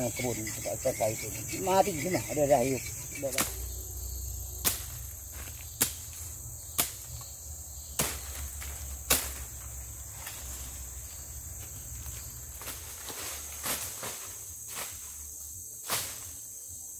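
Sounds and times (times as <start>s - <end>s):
forest insects droning: 0.0s - 16.9s
machete chopping wood: 3.3s - 3.6s, 4.6s - 7.2s, 8.0s - 9.6s.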